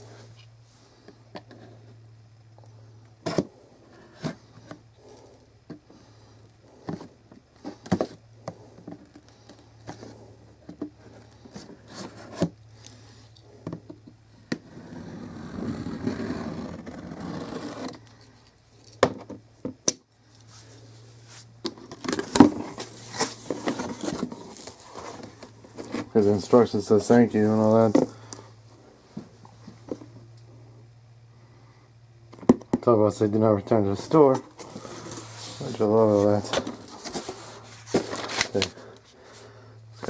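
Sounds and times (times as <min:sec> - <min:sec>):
faint low hum: 0:00.0 - 0:40.0
cardboard rustling scrape: 0:03.2 - 0:05.1, 0:06.7 - 0:12.6, 0:14.6 - 0:18.0, 0:20.5 - 0:28.2, 0:33.9 - 0:38.8
knife cutting cardboard box: 0:11.0 - 0:12.5, 0:14.6 - 0:18.0
cardboard handling: 0:21.6 - 0:28.2, 0:33.9 - 0:38.8.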